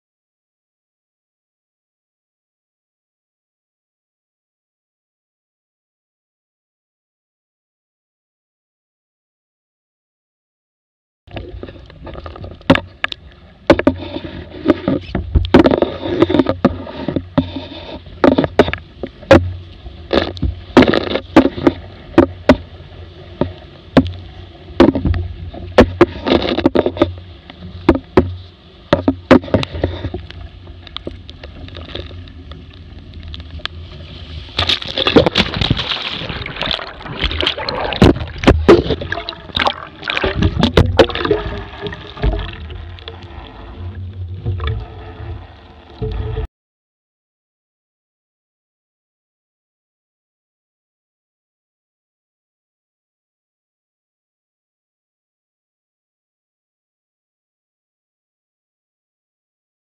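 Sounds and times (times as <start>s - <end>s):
boat hull slapping on waves: 11.3s - 46.5s
water rushing over boat: 11.3s - 46.5s
wind rumble: 11.4s - 46.5s
water hissing along hull: 11.5s - 46.4s.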